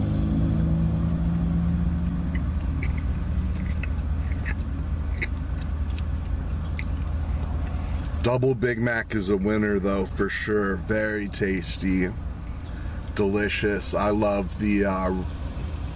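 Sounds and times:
car idling rumble: 0:00.8 - 0:15.9
mouth clicks from chewing: 0:02.3 - 0:08.2.

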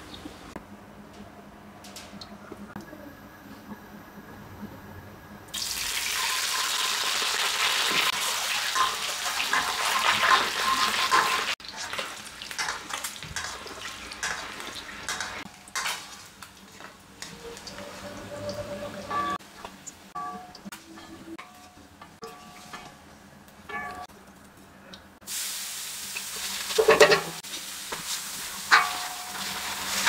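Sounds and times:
frying crackle: 0:05.5 - 0:20.6, 0:25.2 - 0:30.0
eggs sizzling in hot oil: 0:05.6 - 0:20.1, 0:25.2 - 0:30.0.

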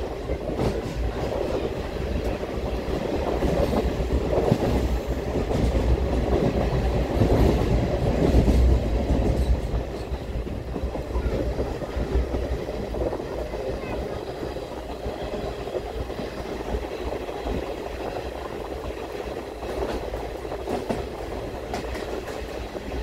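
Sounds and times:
train wheels rumbling on track: 0:00.0 - 0:23.0
knocks of train wheels: 0:03.2 - 0:13.0, 0:19.2 - 0:23.0.

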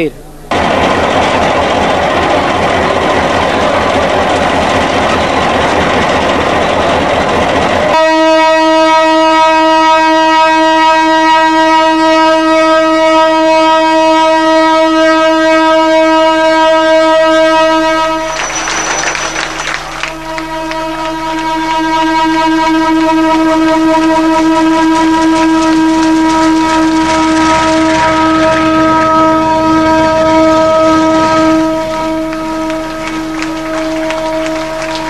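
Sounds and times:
loud dense noise: 0:00.0 - 0:10.7, 0:22.6 - 0:35.0
train horn: 0:07.9 - 0:35.0.

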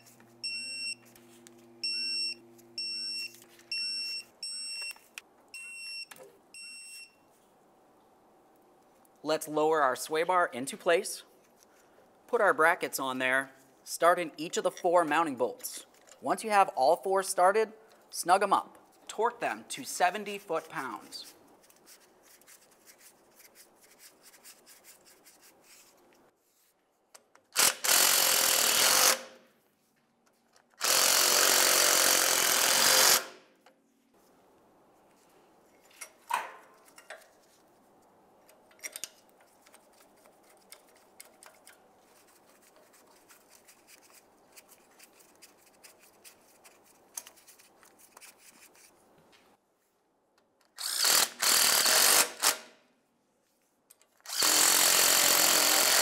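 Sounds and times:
handheld power tool running: 0:27.6 - 0:29.2, 0:30.8 - 0:33.3, 0:50.8 - 0:52.6, 0:54.3 - 0:56.0.

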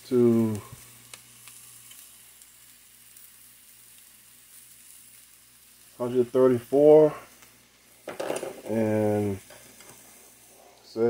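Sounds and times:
burger patties sizzling in a pan: 0:00.0 - 0:11.0
man's voice: 0:08.7 - 0:09.4.

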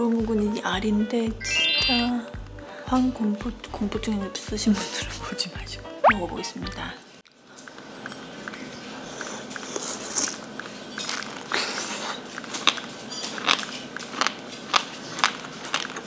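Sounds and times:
close-up chewing: 0:07.2 - 0:16.0.

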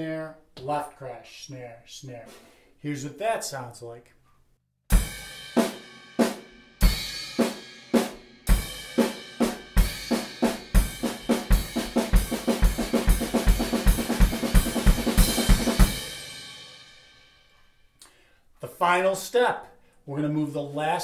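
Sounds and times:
bass drum: 0:08.5 - 0:16.3.

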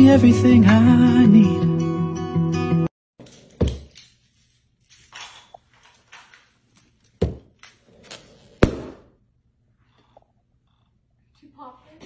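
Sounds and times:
loud sharp balloon smacks: 0:08.6 - 0:09.2.

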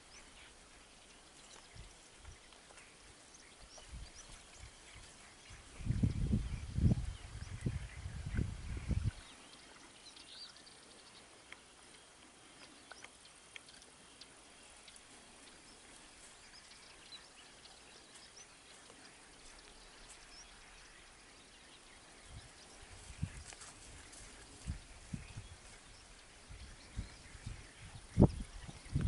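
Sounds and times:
bird chirps: 0:00.0 - 0:29.0
low steady hiss: 0:00.0 - 0:29.0.

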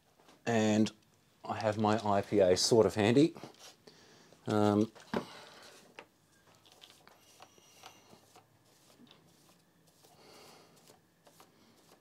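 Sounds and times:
soft brush sweeping circuit board: 0:07.2 - 0:12.0.

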